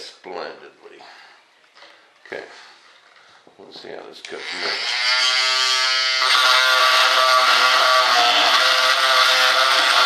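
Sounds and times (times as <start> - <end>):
rotary tool whining: 4.3 - 10.0.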